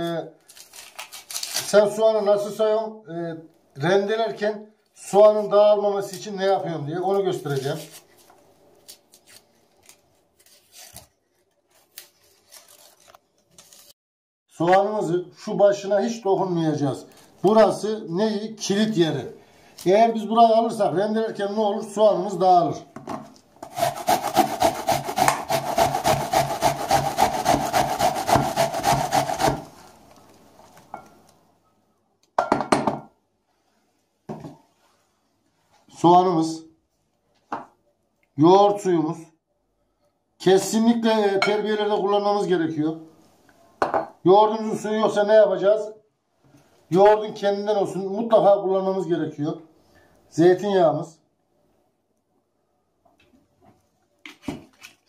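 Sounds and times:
knife scraping onion skin: 0:00.5 - 0:01.7, 0:07.4 - 0:11.2, 0:23.6 - 0:30.2.

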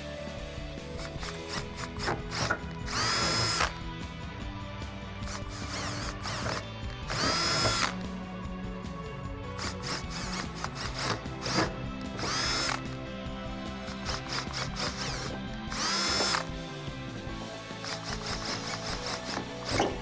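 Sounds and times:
cordless drill boring metal: 0:00.9 - 0:03.8, 0:05.2 - 0:08.0, 0:09.6 - 0:13.0, 0:13.8 - 0:16.6, 0:17.8 - 0:20.0.

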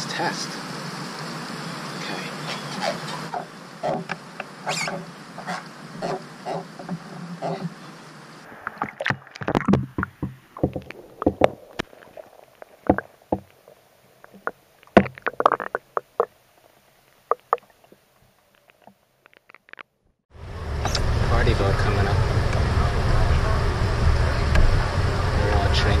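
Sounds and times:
water knocking against camera: 0:08.7 - 0:13.6, 0:14.3 - 0:16.3, 0:17.3 - 0:17.7.

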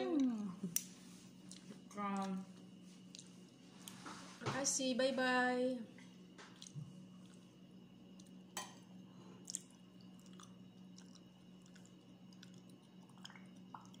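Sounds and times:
faint chewing: 0:00.1 - 0:04.0, 0:06.5 - 0:08.4, 0:09.3 - 0:14.0.

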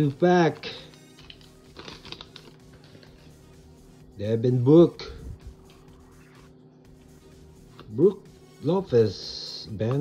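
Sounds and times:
trading cards rustling: 0:00.0 - 0:03.4
quiet background music: 0:00.0 - 0:10.0.

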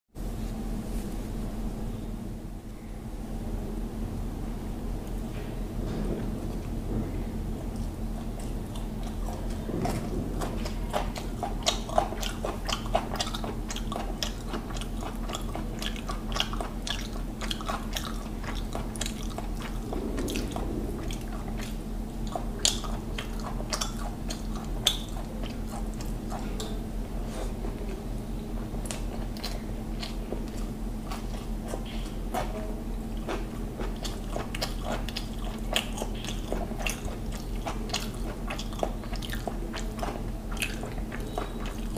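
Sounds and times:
steady low hum: 0:00.2 - 0:41.9
close chewing: 0:07.5 - 0:41.9.

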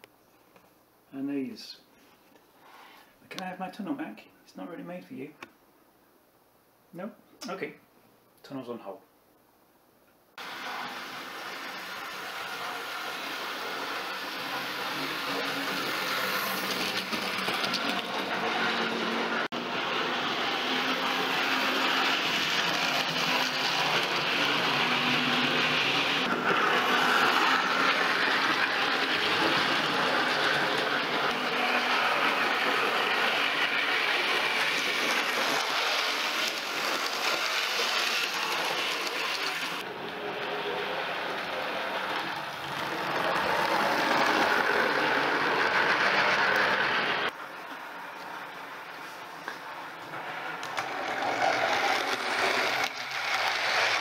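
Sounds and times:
model train running on track: 0:10.4 - 0:47.4, 0:49.8 - 0:54.0.

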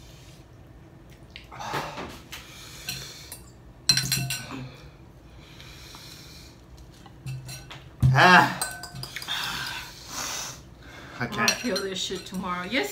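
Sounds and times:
forks clinking on ceramic bowls: 0:02.9 - 0:04.6, 0:07.3 - 0:07.8, 0:08.4 - 0:09.8, 0:11.2 - 0:12.9.

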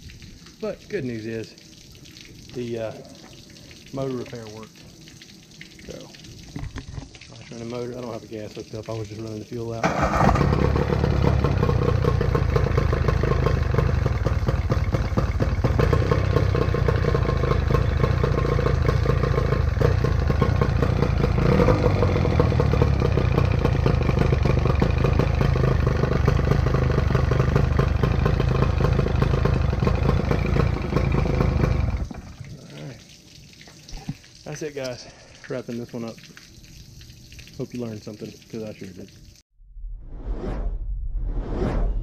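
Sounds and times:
outboard motor running: 0:09.8 - 0:32.5.

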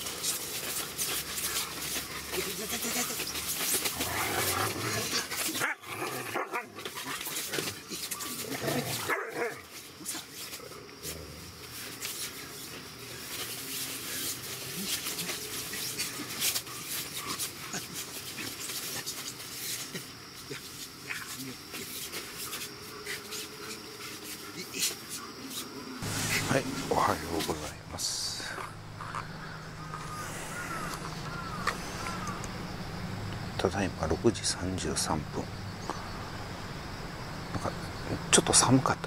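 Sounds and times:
paws scuffling on groundsheet: 0:00.0 - 0:05.7, 0:06.5 - 0:27.7
dogs barking and whining: 0:00.0 - 0:12.7, 0:28.5 - 0:33.3.

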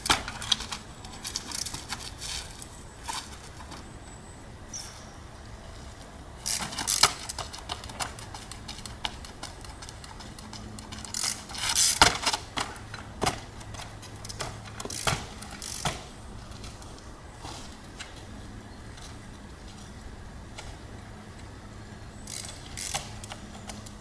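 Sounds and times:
bike knocking and rattling on rock: 0:00.0 - 0:03.9, 0:06.4 - 0:20.8.

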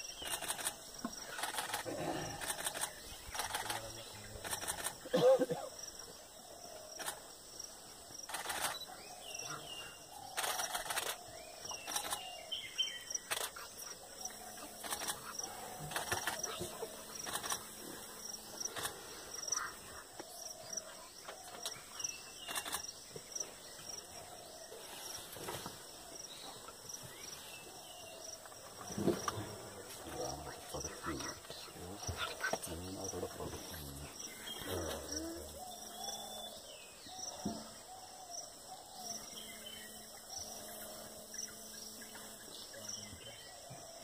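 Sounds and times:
insects chirping: 0:00.0 - 0:44.0
sharp clicks: 0:00.2 - 0:03.8
bird chirps: 0:08.3 - 0:17.7, 0:30.1 - 0:44.0.

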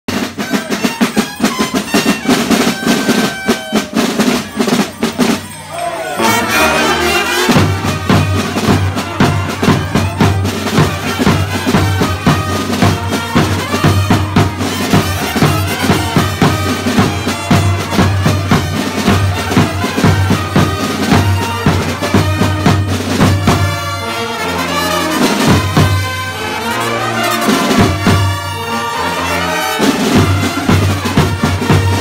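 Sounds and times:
wind instrument tune with drone: 0:00.1 - 0:32.0
bass drums beaten fast: 0:07.1 - 0:23.8.

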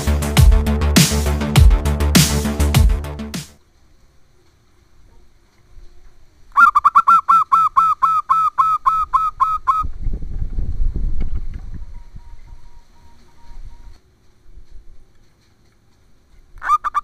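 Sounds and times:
dove calling short notes: 0:06.5 - 0:09.9, 0:16.6 - 0:17.0.

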